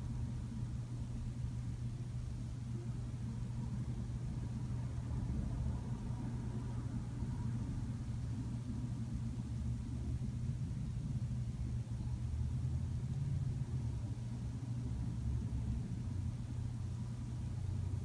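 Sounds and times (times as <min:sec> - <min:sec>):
low hum with rumble: 0:00.0 - 0:18.0
faint higher tone: 0:02.7 - 0:03.1.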